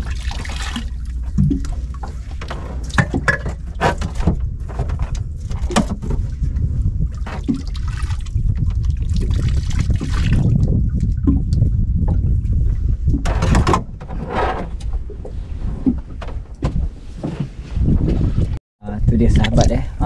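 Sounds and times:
water splashing and trickling: 0:00.0 - 0:16.1, 0:19.2 - 0:20.0
steady low rumble: 0:00.0 - 0:20.0.

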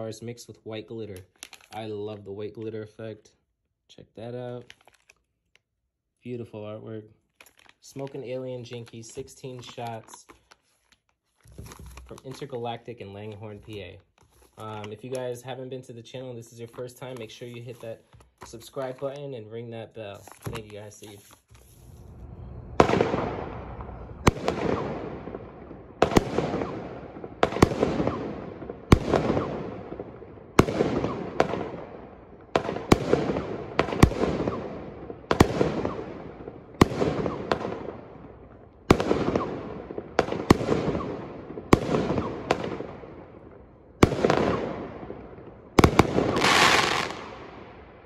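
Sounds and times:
firework shots launching: 0:21.7 - 0:43.4, 0:44.0 - 0:47.9
firework crackle: 0:45.8 - 0:47.5.

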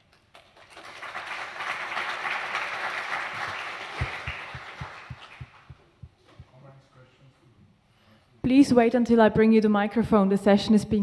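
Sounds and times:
audience applauding: 0:00.0 - 0:06.0
short low thumps: 0:04.0 - 0:06.6.

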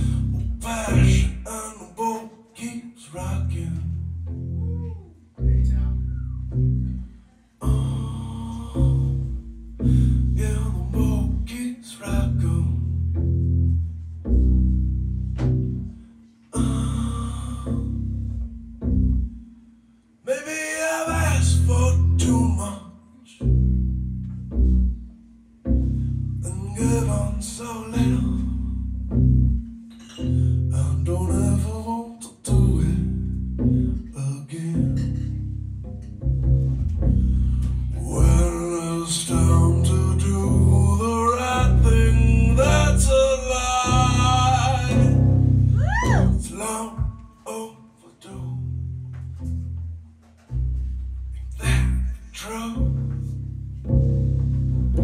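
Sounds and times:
upright double bass plucked: 0:00.0 - 0:02.2, 0:03.0 - 0:19.9, 0:20.8 - 0:22.8, 0:23.4 - 0:47.5, 0:48.3 - 0:55.0
man singing blues: 0:00.0 - 0:03.9, 0:07.6 - 0:09.1, 0:09.8 - 0:12.9, 0:16.6 - 0:17.9, 0:20.3 - 0:23.4, 0:26.4 - 0:28.7, 0:30.3 - 0:33.2, 0:34.1 - 0:35.2, 0:37.9 - 0:48.7, 0:51.5 - 0:53.0.

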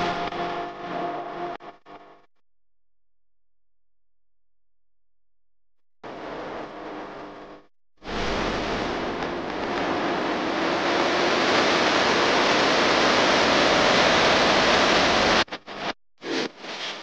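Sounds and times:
steady rushing noise: 0:06.0 - 0:16.0.

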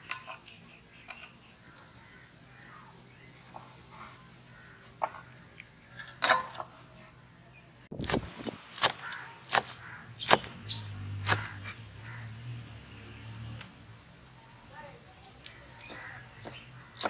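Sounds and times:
cleaver chopping on wooden board: 0:08.0 - 0:10.6, 0:11.2 - 0:11.7.

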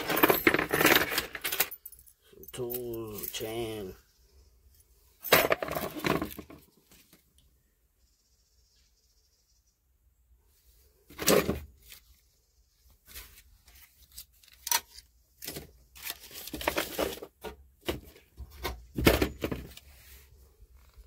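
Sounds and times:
hands rummaging in metal glove box: 0:00.0 - 0:03.8, 0:05.2 - 0:06.6, 0:11.1 - 0:12.0, 0:13.1 - 0:19.9.

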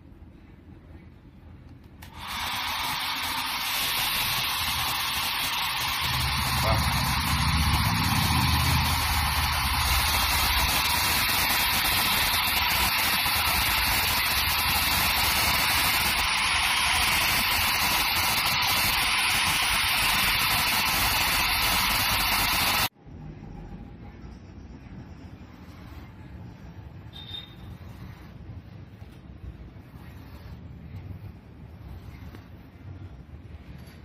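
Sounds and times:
hair dryer blowing: 0:02.0 - 0:22.9.

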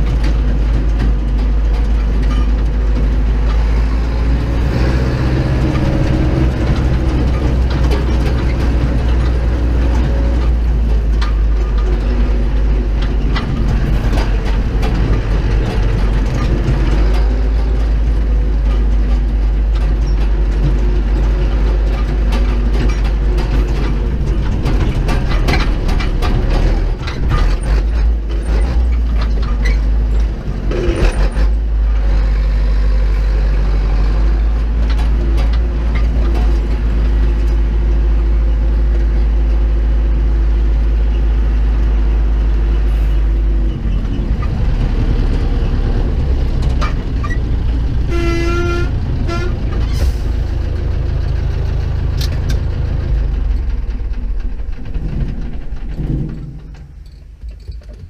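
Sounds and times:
tractor diesel engine running: 0:00.0 - 0:58.0
cab fittings rattling: 0:54.8 - 0:58.0.

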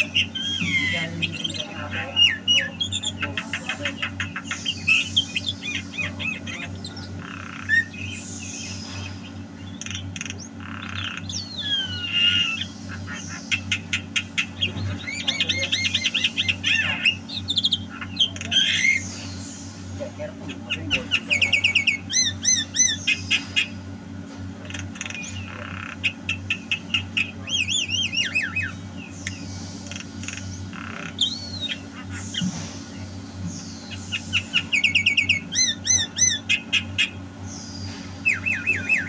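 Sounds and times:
myna bird singing: 0:00.0 - 0:39.0
steady low hum: 0:00.0 - 0:39.0.

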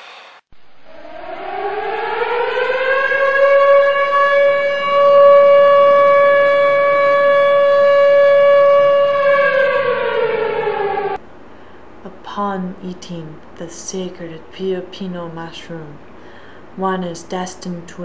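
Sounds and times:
siren winding up and down: 0:00.6 - 0:11.2.

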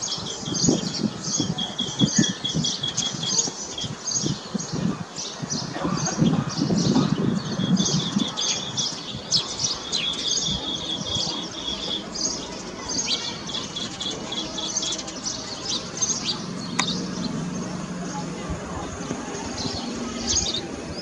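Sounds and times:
bird chirping: 0:06.2 - 0:21.0
rapid trilled bird notes: 0:07.8 - 0:21.0.

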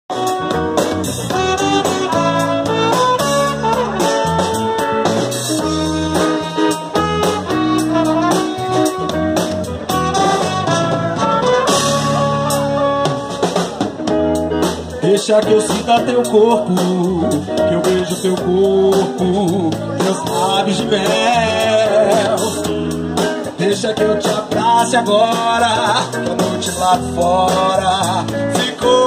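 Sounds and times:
melody of held notes: 0:00.1 - 0:15.0
drum kit: 0:00.1 - 0:29.0
electric bass: 0:00.1 - 0:29.0
electric guitar: 0:00.1 - 0:29.0.

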